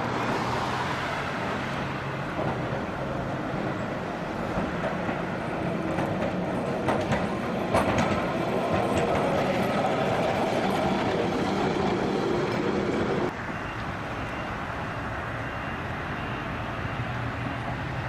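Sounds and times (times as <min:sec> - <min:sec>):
steady tram rumble: 0:01.2 - 0:14.0
tram wheels clattering on rails: 0:01.4 - 0:13.3.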